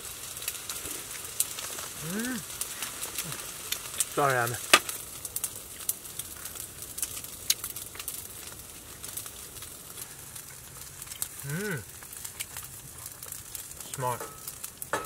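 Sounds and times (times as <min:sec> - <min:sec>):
low steady hiss: 0:00.0 - 0:15.0
person humming: 0:02.0 - 0:02.5, 0:11.4 - 0:11.8.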